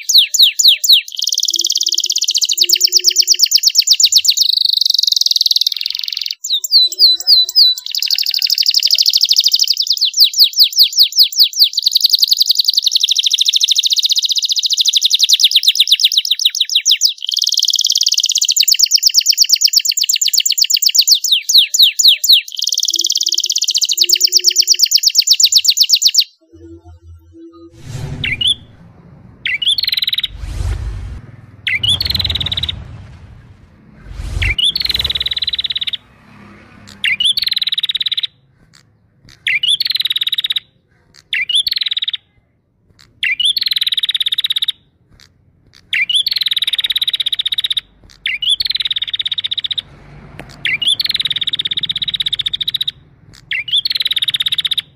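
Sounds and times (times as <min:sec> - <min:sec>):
canary trilling song: 0:00.0 - 0:28.7, 0:34.6 - 0:42.4, 0:43.0 - 0:54.9
bird chirping phrases: 0:00.0 - 0:36.1, 0:50.6 - 0:54.9
low rumble: 0:26.6 - 0:37.4.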